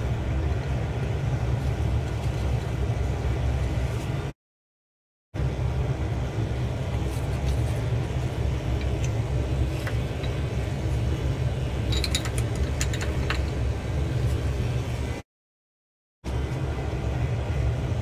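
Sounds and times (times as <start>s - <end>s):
low machine hum: 0.0s - 4.4s, 5.4s - 15.2s, 16.3s - 18.0s
glass clinking: 11.9s - 13.4s.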